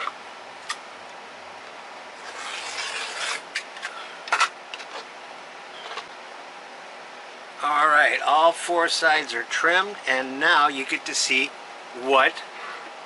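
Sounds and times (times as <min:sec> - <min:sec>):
rotary cutter slicing fabric: 0:02.2 - 0:03.6.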